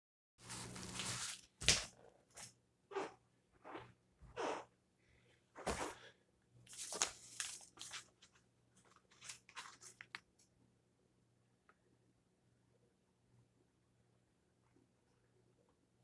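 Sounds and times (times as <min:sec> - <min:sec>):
paper rustling and crinkling: 0:00.4 - 0:01.9, 0:06.7 - 0:10.4.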